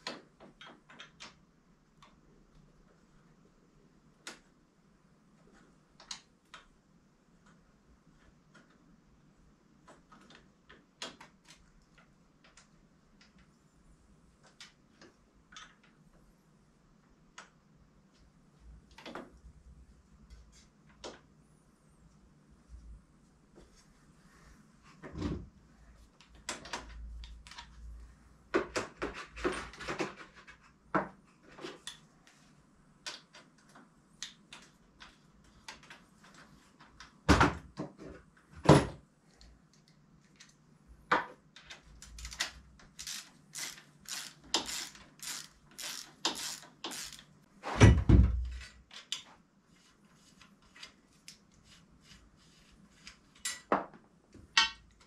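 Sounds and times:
tools clicking and clinking: 42.0 - 47.3.

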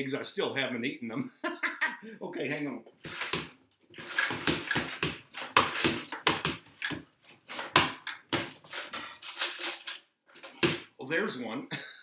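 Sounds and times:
cutlery clattering in a drawer: 3.1 - 10.8.

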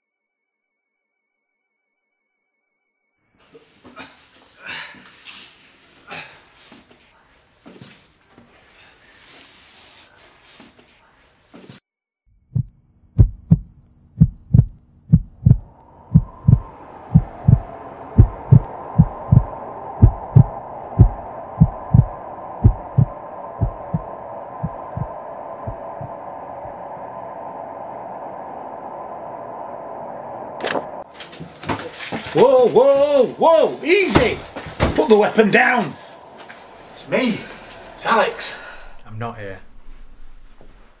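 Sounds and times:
heartbeat thumps: 12.5 - 26.8
steady drone: 12.7 - 31.0, 35.6 - 40.6
noise wash with high whine: 15.6 - 31.0, 35.2 - 40.8.

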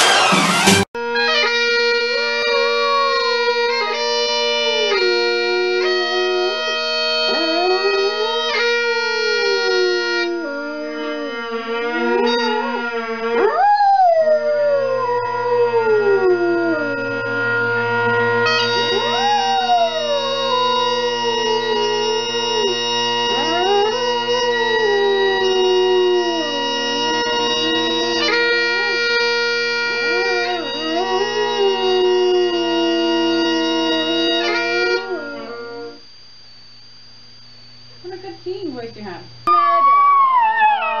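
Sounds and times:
dog howling: 1.2 - 36.0, 39.5 - 41.0
steady musical chords: 16.9 - 35.9.

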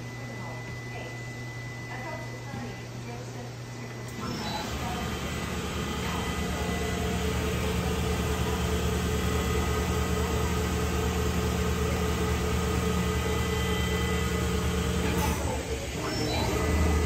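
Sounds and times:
machine hum: 3.4 - 17.0.

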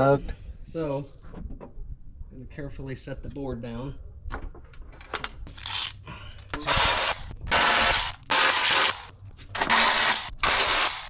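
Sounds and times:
cordless ratchet spinning: 5.6 - 6.0, 6.7 - 9.1.

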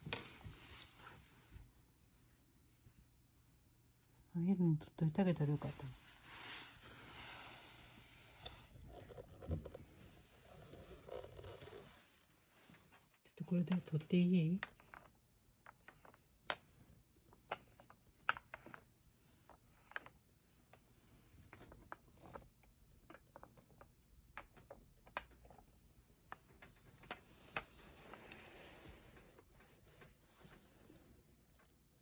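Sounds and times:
soft rustle: 0.2 - 4.3, 5.3 - 13.2, 26.5 - 32.0
lint roller clicking on fur: 13.6 - 31.0.

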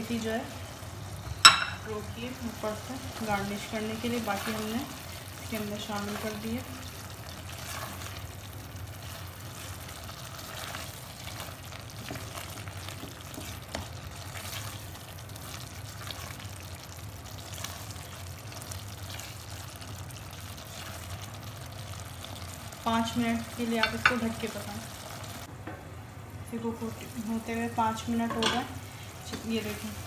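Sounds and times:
food sizzling in a pot: 0.0 - 25.5, 26.6 - 30.0
spatula scraping and tapping pot: 12.0 - 14.0.

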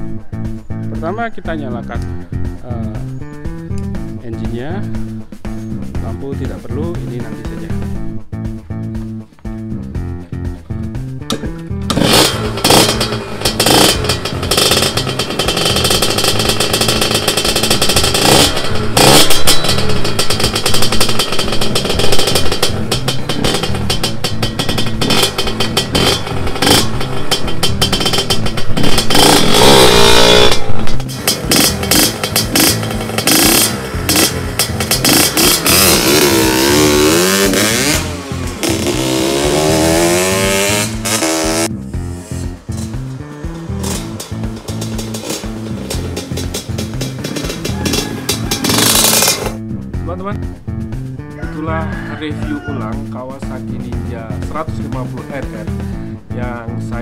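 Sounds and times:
motorcycle engine revving: 9.9 - 51.4, 52.4 - 57.0
motorcycle kick start: 11.2 - 41.7, 43.8 - 49.6.

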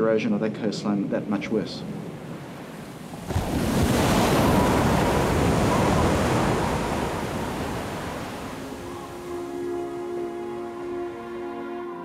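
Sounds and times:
surf crashing against sea wall: 1.9 - 9.3.

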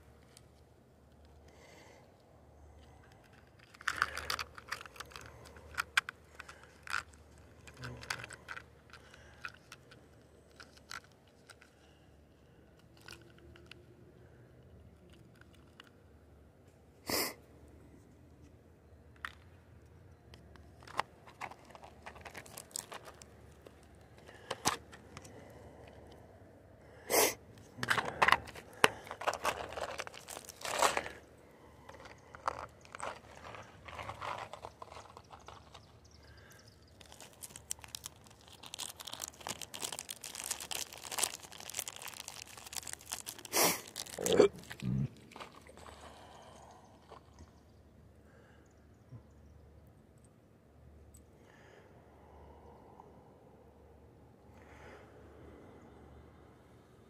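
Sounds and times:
handling clicks and scrapes: 2.1 - 12.0, 20.2 - 26.2, 27.5 - 40.0
crinkling rustles: 2.8 - 13.8, 20.4 - 26.0, 27.7 - 46.4.

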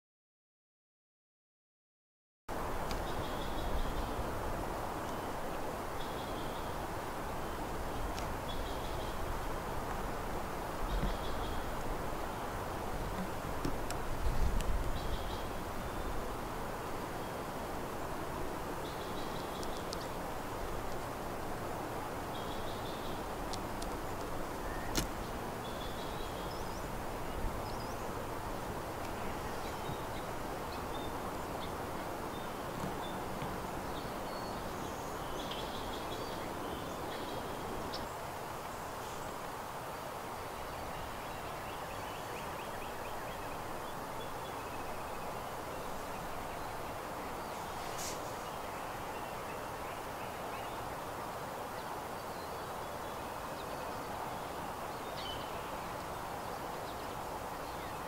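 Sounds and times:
rushing outdoor background noise: 2.5 - 58.0
woodland background hiss: 2.5 - 58.0
faint ticks: 13.1 - 15.0, 19.5 - 20.1, 23.5 - 25.2.

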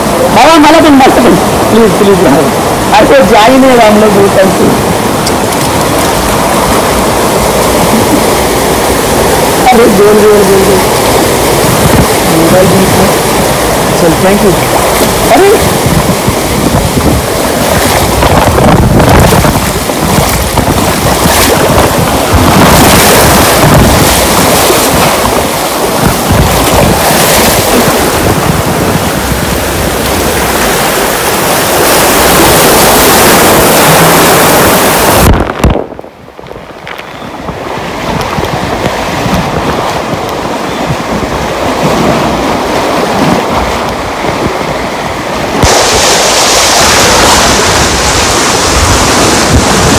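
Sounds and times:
water rushing on slide: 0.0 - 49.9
wind buffeting microphone: 0.0 - 49.9.

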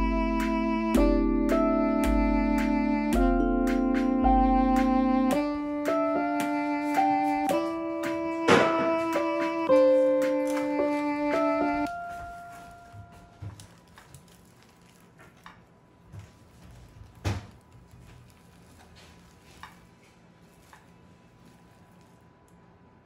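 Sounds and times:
guitar music: 0.0 - 13.2.

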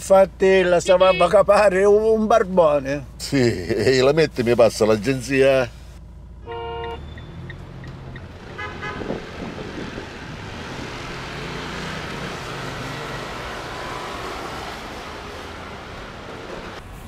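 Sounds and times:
cars and scooters passing: 6.0 - 17.0
car horn toot: 6.4 - 7.4, 8.5 - 9.2.

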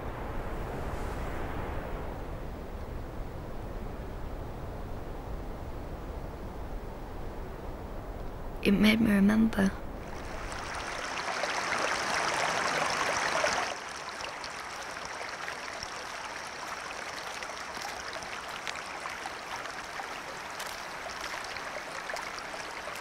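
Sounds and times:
stream water rushing: 10.0 - 23.0.

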